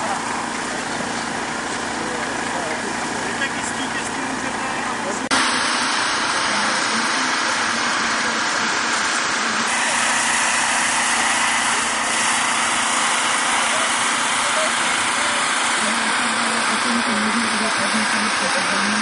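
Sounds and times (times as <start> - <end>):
engine running steadily: 0.0 - 19.0.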